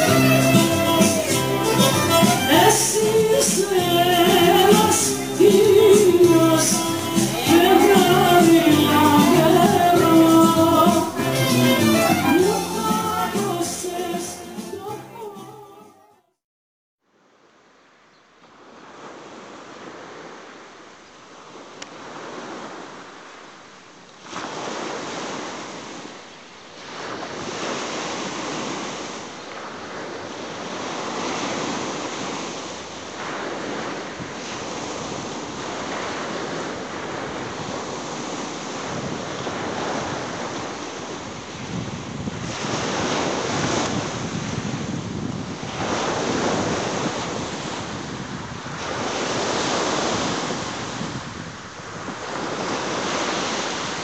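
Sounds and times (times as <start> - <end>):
sea waves breaking on shore: 0.0 - 15.5, 18.5 - 54.0
wind buffeting microphone: 33.2 - 54.0.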